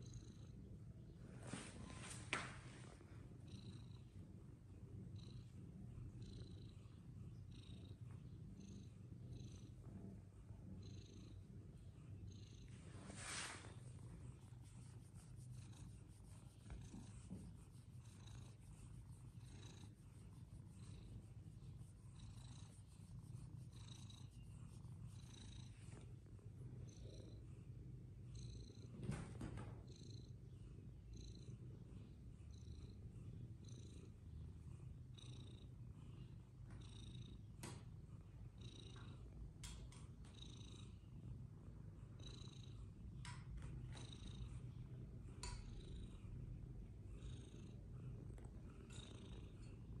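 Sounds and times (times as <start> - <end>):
cat purring: 0.0 - 50.0.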